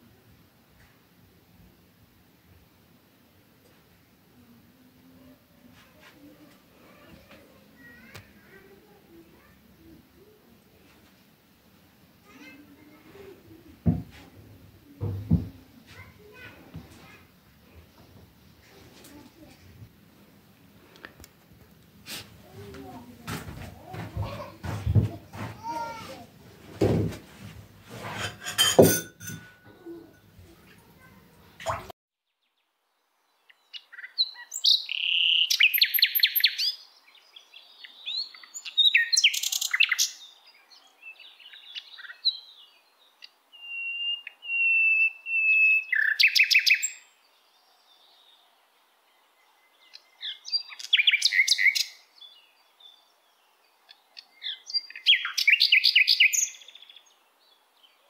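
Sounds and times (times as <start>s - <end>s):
small birds chirping: 6.0s - 10.9s, 29.6s - 58.0s.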